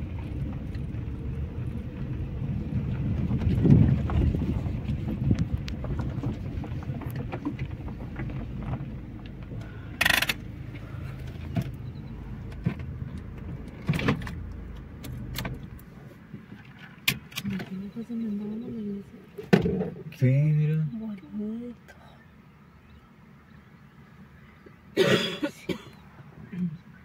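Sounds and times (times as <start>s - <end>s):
car engine and tyre rumble: 0.0s - 27.0s
rattles and knocks: 3.1s - 10.5s.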